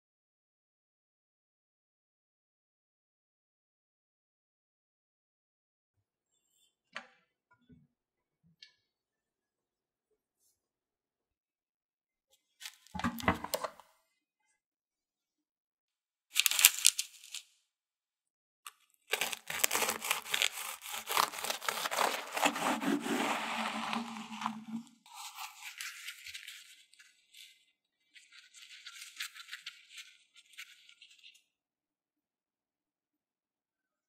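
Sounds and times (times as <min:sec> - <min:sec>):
pastry crust crackling: 0:16.4 - 0:17.4, 0:19.1 - 0:26.2
serrated knife sawing crunchy shell: 0:19.1 - 0:24.4.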